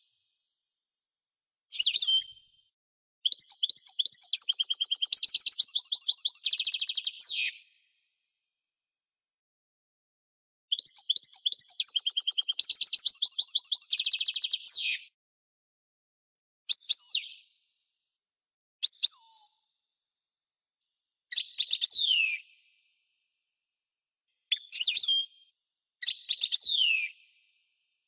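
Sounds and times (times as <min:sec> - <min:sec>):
goldfinch twittering song: 0:03.4 - 0:07.2, 0:11.0 - 0:14.6.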